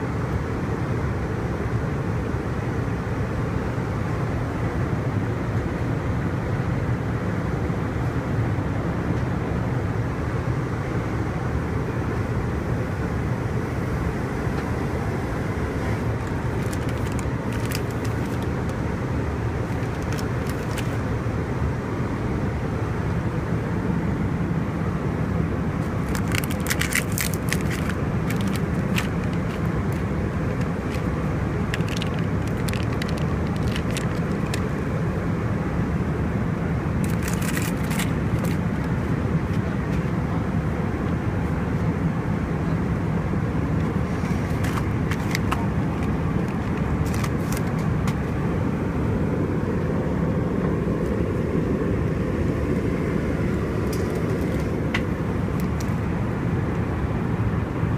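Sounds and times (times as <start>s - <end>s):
airplane cabin roar: 0.0s - 57.9s
plastic wrapper crinkling: 16.2s - 18.8s, 19.7s - 21.0s, 25.9s - 34.6s, 37.0s - 38.6s, 46.4s - 47.7s.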